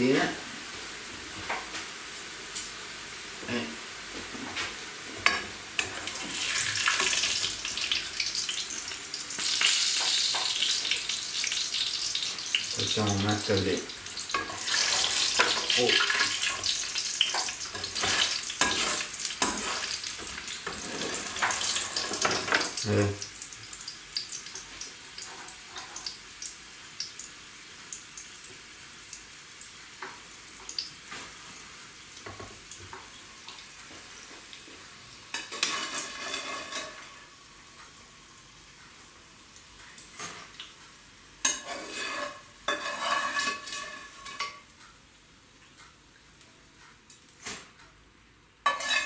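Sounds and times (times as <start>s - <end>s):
frying oil sizzling: 0.0s - 44.8s, 48.6s - 49.0s
metal skimmer scraping pan: 35.5s - 37.1s, 41.5s - 44.6s.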